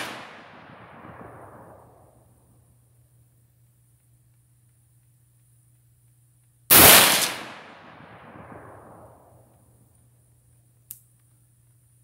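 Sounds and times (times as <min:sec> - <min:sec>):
rifle shot: 0:00.0 - 0:02.3, 0:06.7 - 0:09.5.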